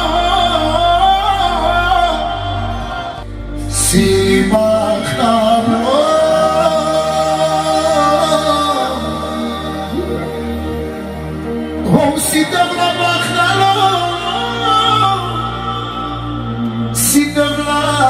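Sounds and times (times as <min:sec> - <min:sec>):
man singing through pa: 0:00.0 - 0:10.2, 0:11.8 - 0:18.0
keyboard: 0:00.0 - 0:18.0
sustained bass: 0:00.0 - 0:18.0.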